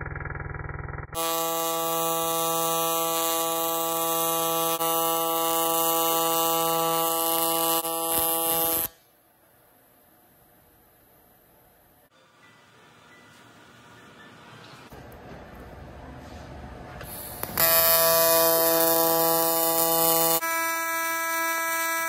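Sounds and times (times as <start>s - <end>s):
welding arc buzzing: 1.2s - 9.1s, 17.0s - 22.0s.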